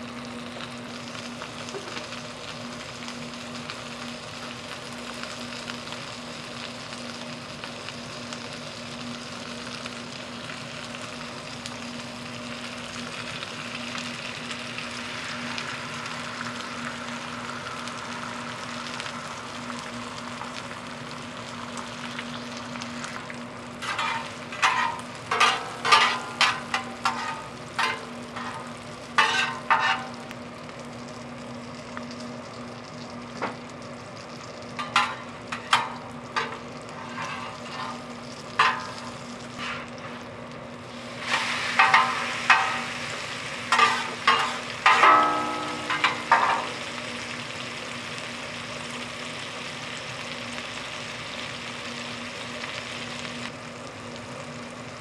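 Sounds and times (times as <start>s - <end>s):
food sizzling on griddle: 0.0s - 55.0s
metal utensil scraping pan: 23.8s - 30.1s, 34.8s - 40.2s, 41.3s - 43.0s, 43.7s - 46.8s
low hum: 31.8s - 47.9s.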